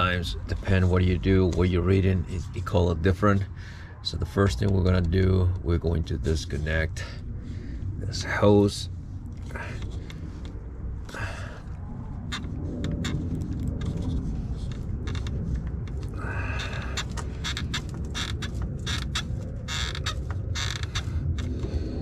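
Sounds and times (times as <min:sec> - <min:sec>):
rubber hose creaking: 0:00.0 - 0:03.6, 0:09.2 - 0:22.0
steady low rumble: 0:00.0 - 0:22.0.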